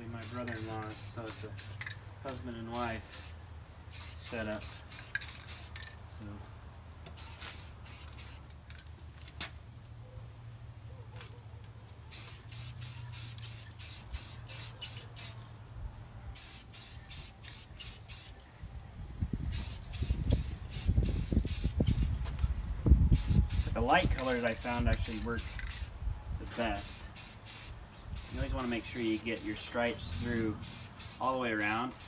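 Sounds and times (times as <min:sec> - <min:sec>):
spray paint can hissing: 0:00.2 - 0:02.0, 0:03.0 - 0:05.9, 0:07.1 - 0:08.7, 0:12.1 - 0:15.4, 0:16.4 - 0:18.4, 0:19.5 - 0:22.2, 0:23.1 - 0:32.0.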